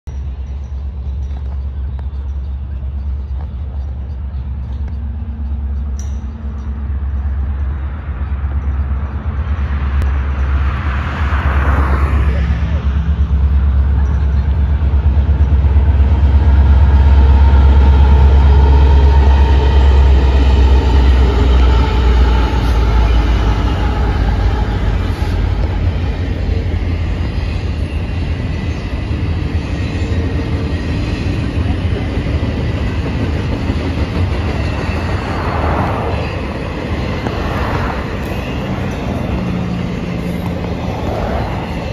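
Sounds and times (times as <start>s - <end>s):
diesel locomotive rumble: 0.1s - 41.9s
train wheels on rails: 0.1s - 41.9s.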